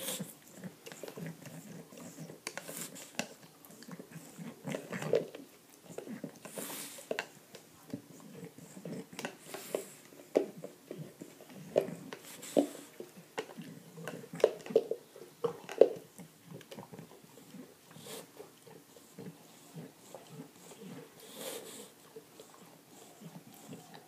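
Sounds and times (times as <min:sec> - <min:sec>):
dog snuffling breaths: 0:00.0 - 0:03.2, 0:06.0 - 0:07.2, 0:08.0 - 0:10.1, 0:10.9 - 0:13.1, 0:17.3 - 0:24.0.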